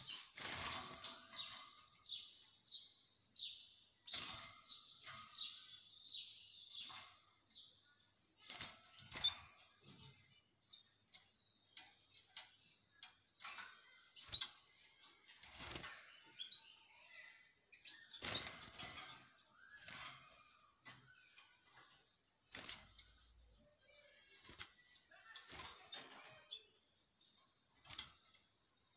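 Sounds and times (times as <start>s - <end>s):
birds clicking and knocking in cage: 0.0s - 28.9s
canaries chirping: 0.0s - 28.9s.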